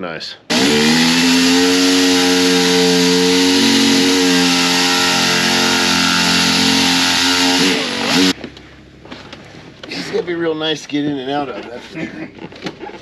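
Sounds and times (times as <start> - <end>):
air-powered cutting tool: 0.5 - 8.4.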